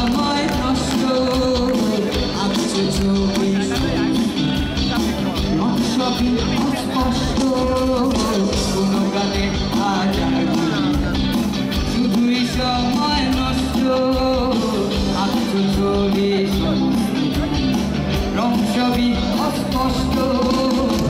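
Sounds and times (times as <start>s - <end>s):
live rock band: 0.0s - 21.0s
man singing: 0.0s - 21.0s.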